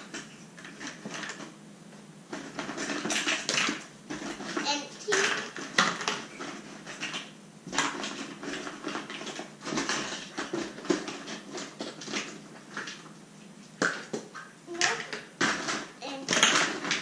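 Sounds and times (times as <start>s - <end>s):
plastic eggs clattering: 2.3s - 13.2s, 13.8s - 17.0s.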